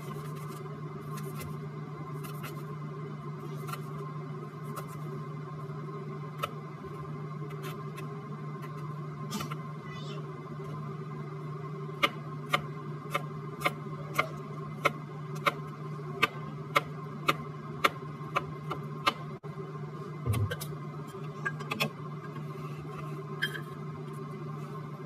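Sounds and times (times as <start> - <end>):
low hum: 19.4 - 25.0.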